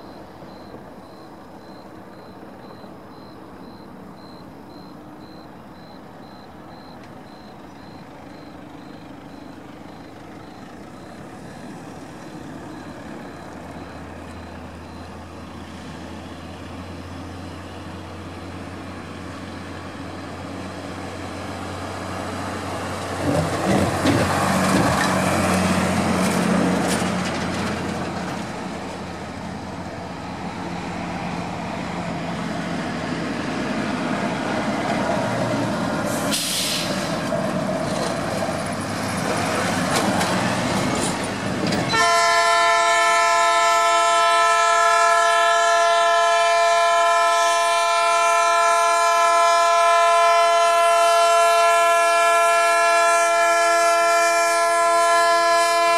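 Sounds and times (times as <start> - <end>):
level crossing warning beep: 0.0 - 15.3
diesel locomotive engine: 0.0 - 55.9
train knocks passing: 21.1 - 55.9.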